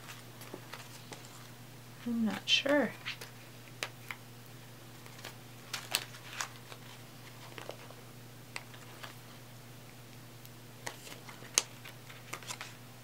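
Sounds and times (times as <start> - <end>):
plastic packaging crinkling: 4.9 - 9.4, 10.8 - 12.8.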